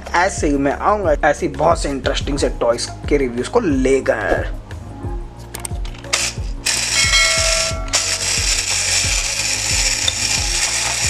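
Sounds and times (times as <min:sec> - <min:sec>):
background music with steady beat: 0:00.0 - 0:11.0
clockwork gears whirring: 0:05.8 - 0:11.0.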